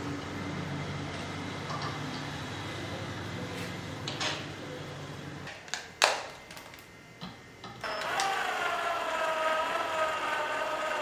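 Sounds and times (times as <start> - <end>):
cordless drill driving a screw: 7.8 - 11.0.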